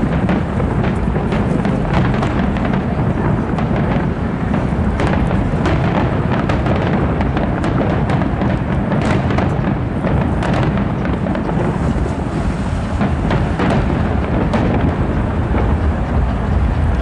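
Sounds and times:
fireworks booming: 0.0 - 17.0
fireworks sharp cracks: 0.0 - 17.0.

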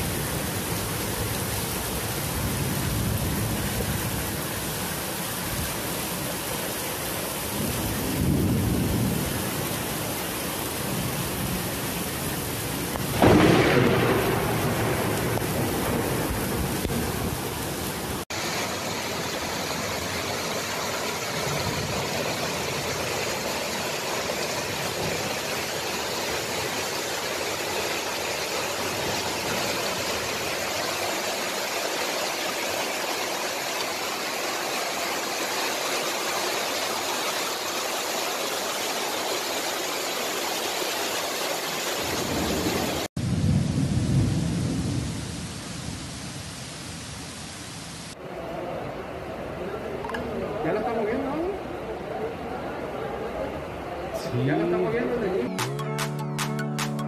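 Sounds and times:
rushing floodwater: 0.0 - 43.1
heavy rain: 0.0 - 55.5.

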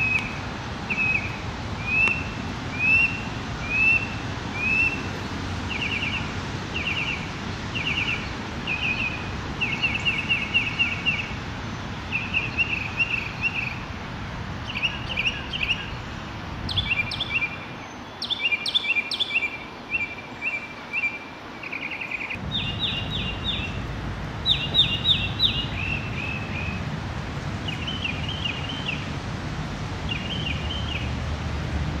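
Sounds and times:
mockingbird singing: 0.9 - 5.0, 16.7 - 23.8, 24.4 - 26.8.

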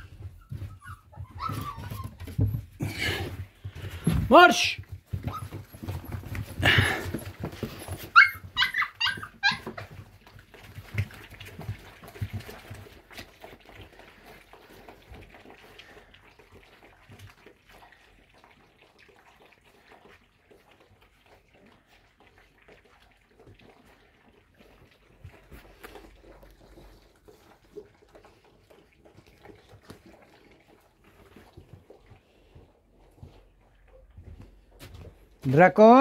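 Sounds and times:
puppies yelping: 0.0 - 2.5, 5.2 - 10.1
puppies lapping and smacking: 0.0 - 36.0.

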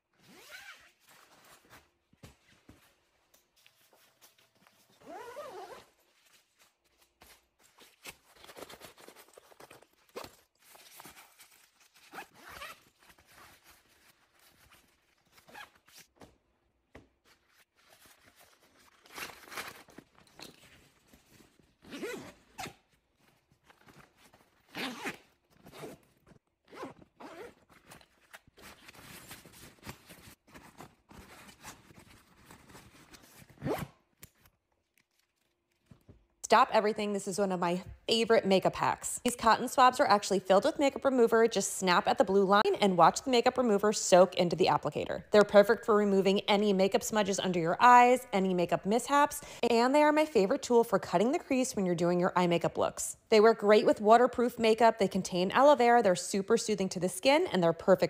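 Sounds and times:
bag zippers zipping: 0.2 - 1.1, 5.0 - 5.9, 12.1 - 13.0, 21.8 - 22.8, 24.6 - 27.7, 33.6 - 34.0.

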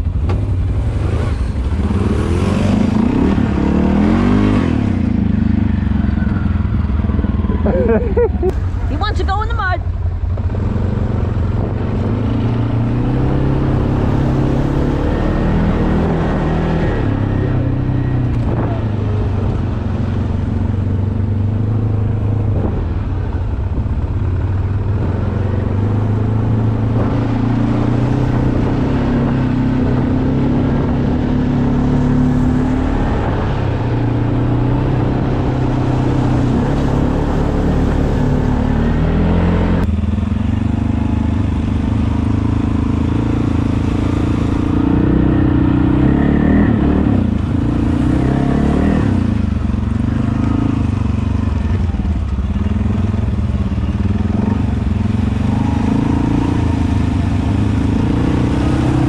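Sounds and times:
atv engine revving: 0.0 - 59.0.

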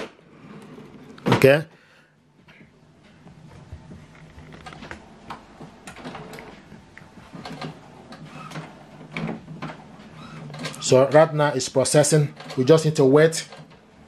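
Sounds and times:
printer mechanism humming: 4.1 - 14.0.

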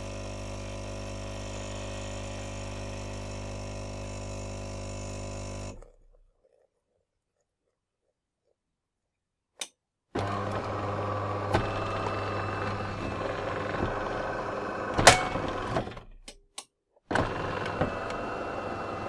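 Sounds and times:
espresso machine pump humming: 0.0 - 5.9, 10.2 - 15.8.

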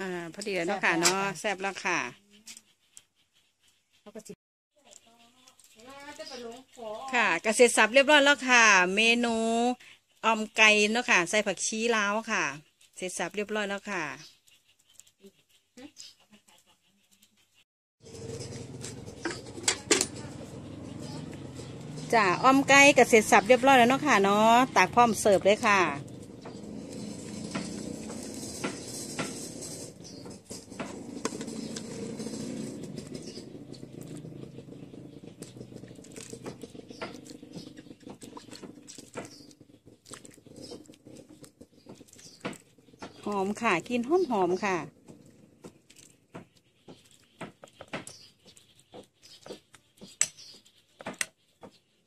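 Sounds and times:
metal ladle scraping in a pot: 18.0 - 21.9, 22.7 - 46.3.

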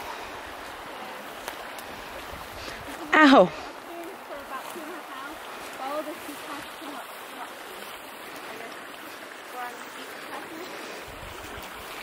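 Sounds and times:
river flowing over rocks: 0.0 - 12.0
wind buffeting microphone: 1.9 - 3.7, 10.4 - 12.0.

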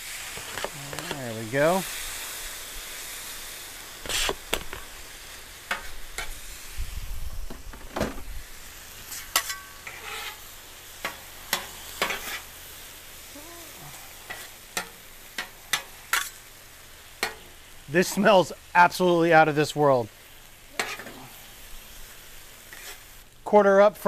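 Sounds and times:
chicken sizzling on griddle: 0.0 - 24.0
metal spatulas scraping griddle: 4.1 - 4.4, 5.7 - 6.4, 9.1 - 12.5, 14.2 - 16.4, 20.8 - 21.4, 22.7 - 23.1.

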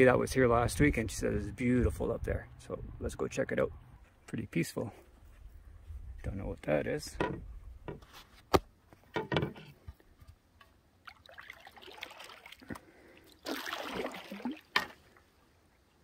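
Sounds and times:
paddle splashing water: 11.0 - 15.0.

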